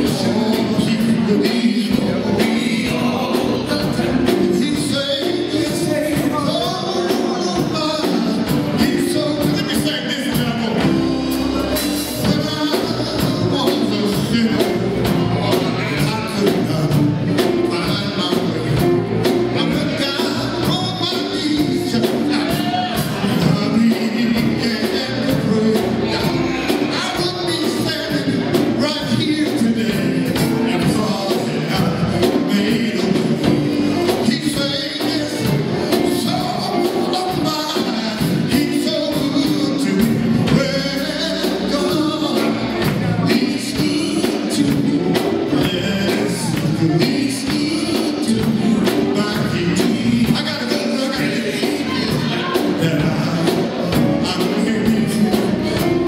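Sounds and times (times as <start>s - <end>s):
bass guitar: 0.0s - 56.0s
drums: 0.0s - 56.0s
electric guitars: 0.0s - 56.0s
man singing into a microphone: 0.0s - 56.0s.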